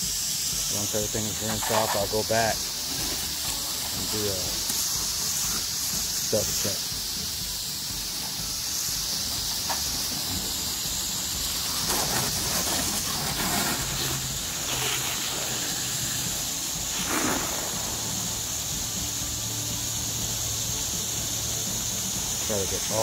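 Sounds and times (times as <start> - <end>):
hose nozzle spraying water: 0.0 - 23.0.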